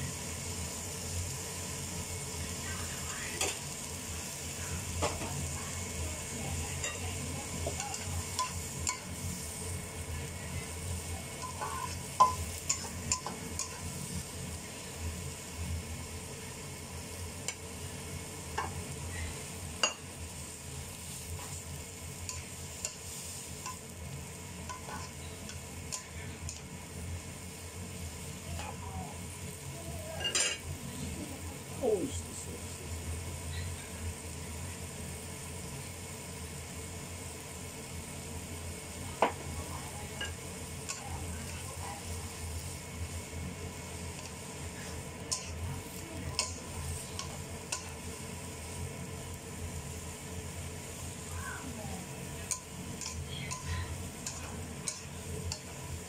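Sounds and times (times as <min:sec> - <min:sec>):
noodles sizzling in a wok: 0:00.0 - 0:56.0
spatula tapping and scraping pan: 0:11.4 - 0:13.9, 0:22.2 - 0:23.9, 0:46.3 - 0:48.0, 0:52.4 - 0:55.8.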